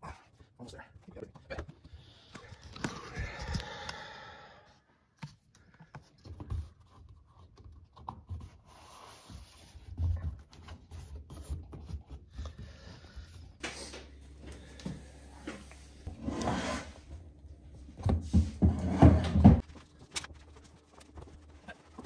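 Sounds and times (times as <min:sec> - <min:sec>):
rubber scratching and rubbing: 0:18.8 - 0:22.0.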